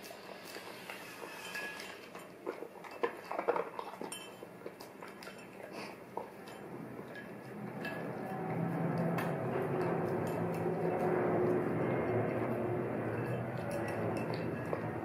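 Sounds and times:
dog chewing and lapping: 0:00.0 - 0:15.0
spoon clinking against bowl: 0:01.3 - 0:02.1, 0:03.9 - 0:04.5, 0:13.1 - 0:15.0.

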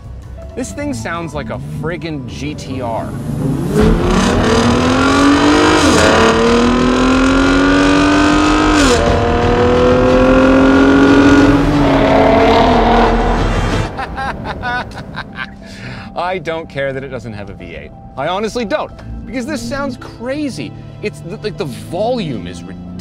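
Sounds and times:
truck engine accelerating hard: 0:01.1 - 0:15.0.

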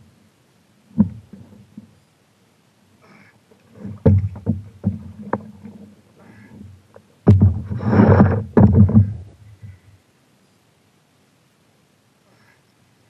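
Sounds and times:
paddle knocking on paddleboard: 0:01.0 - 0:01.9, 0:03.8 - 0:05.8, 0:07.2 - 0:09.3
paddle strokes splashing water: 0:03.6 - 0:09.3.

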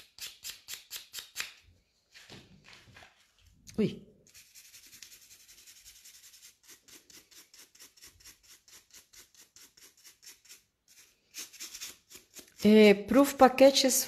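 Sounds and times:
brush swishing over nail: 0:04.2 - 0:12.8.

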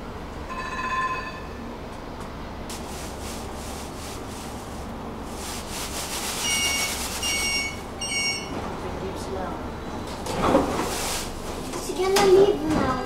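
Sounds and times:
stopped tram humming: 0:00.0 - 0:13.0
rushing hiss: 0:02.7 - 0:07.4
two short electronic beeps: 0:06.4 - 0:08.6.

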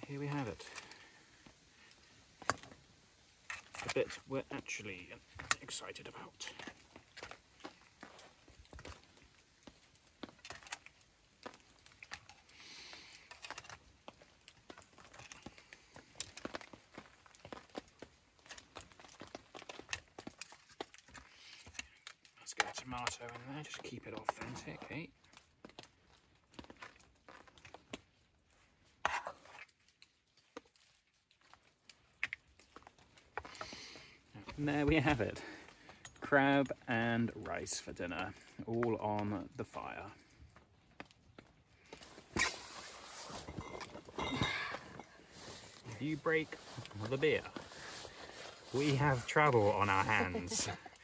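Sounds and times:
short scrape: 0:42.3 - 0:43.5.

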